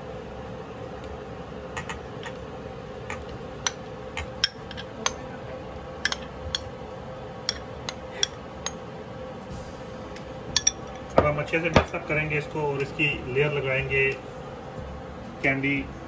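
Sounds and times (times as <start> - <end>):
metal spoon clinking against bowls: 4.4 - 5.3, 6.0 - 6.7, 7.5 - 8.8, 10.6 - 12.0.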